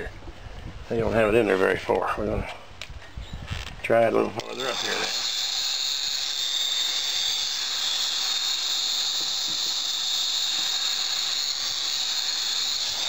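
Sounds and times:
heat gun hissing: 0:04.4 - 0:13.0.

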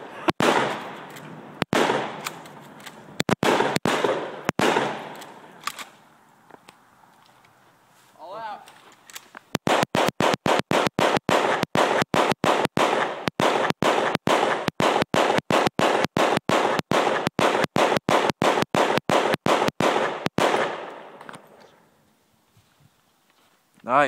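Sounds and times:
fireworks rushing: 0:00.0 - 0:02.5, 0:09.6 - 0:21.2.

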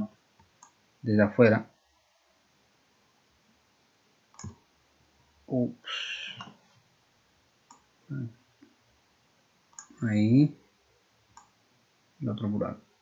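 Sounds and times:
computer mouse clicks: 0:04.3 - 0:04.6, 0:09.7 - 0:10.0, 0:11.4 - 0:11.6.

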